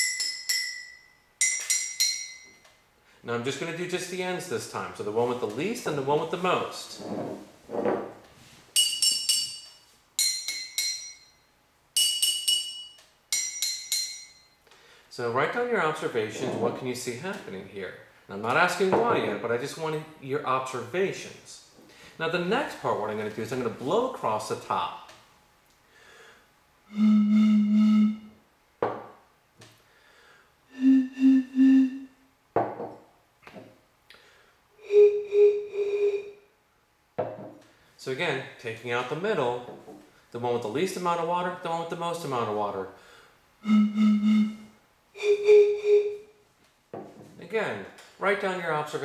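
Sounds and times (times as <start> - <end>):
pencil tapping glass bottles: 0.0 - 2.6, 8.8 - 11.3, 12.0 - 14.4
short breaths: 14.7 - 15.1, 21.8 - 22.2, 25.8 - 26.5, 29.8 - 31.8, 34.1 - 34.7, 43.0 - 43.4
breathy bottle tones: 30.7 - 32.1.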